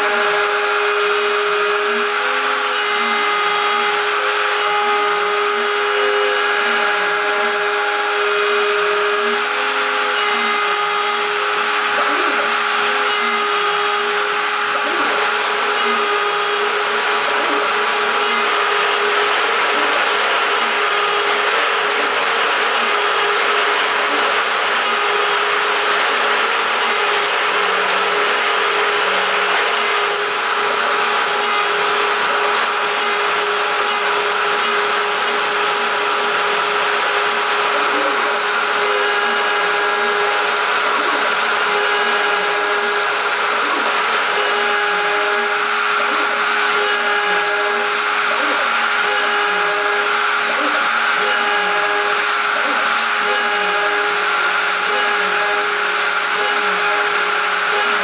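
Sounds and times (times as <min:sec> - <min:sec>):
router spindle high whine: 0:00.0 - 0:58.0.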